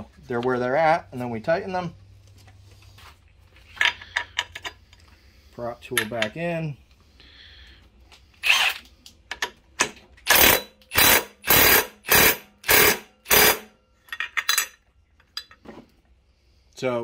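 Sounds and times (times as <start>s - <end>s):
power tool bursts: 10.3s - 13.7s.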